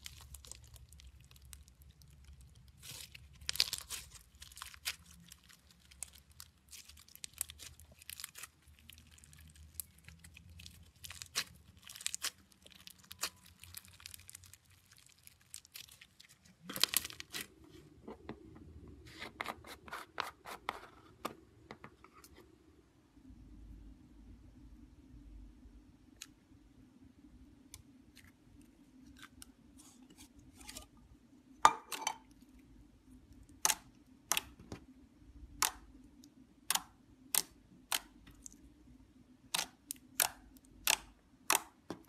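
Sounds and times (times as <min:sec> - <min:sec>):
slime crackling and popping: 0:00.0 - 0:17.5, 0:33.4 - 0:34.6, 0:36.6 - 0:38.7, 0:39.4 - 0:41.9.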